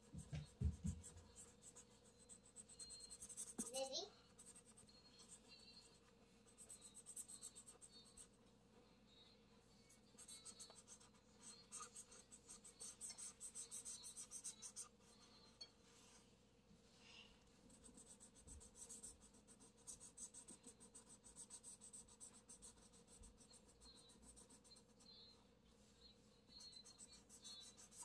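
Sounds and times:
marker scratching on paper: 0.0s - 8.3s, 10.1s - 15.0s, 17.7s - 25.1s, 26.5s - 28.0s.

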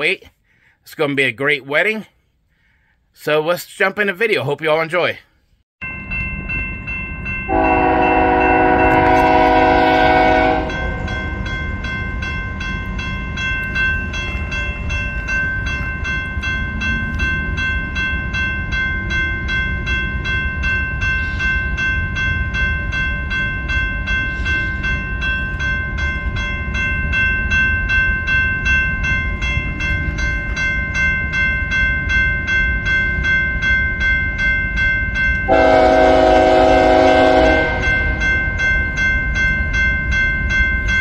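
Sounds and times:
grade-crossing bell ringing: 5.8s - 41.0s
passing train rumble: 5.8s - 41.0s
locomotive horn: 7.5s - 11.1s, 35.5s - 38.3s.

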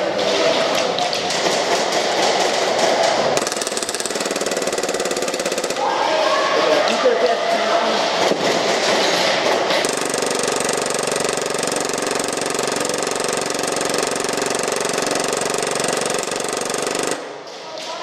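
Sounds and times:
airsoft pistol firing full auto: 3.4s - 5.8s, 9.8s - 17.3s.

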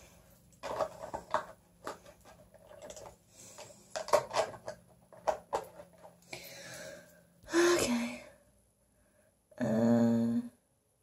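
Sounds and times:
makeup items clicking on counter: 0.5s - 6.2s.

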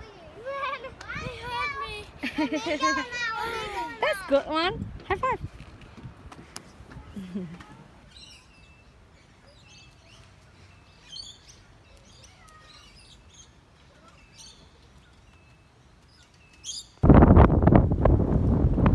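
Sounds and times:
wind noise on microphone: 4.2s - 7.2s, 17.0s - 18.9s
birds chirping and whistling: 8.1s - 17.0s.

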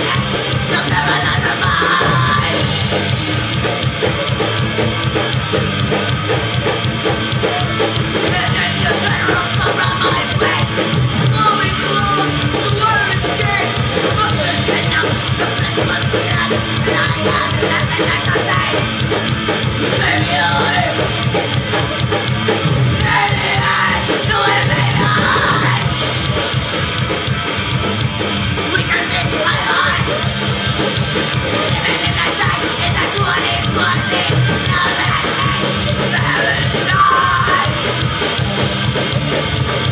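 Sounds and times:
shouted vocals: 0.0s - 3.0s, 7.0s - 22.2s, 22.8s - 26.6s, 28.6s - 38.5s
punk rock band playing live: 0.0s - 39.9s
rapid drumming: 0.0s - 39.9s.

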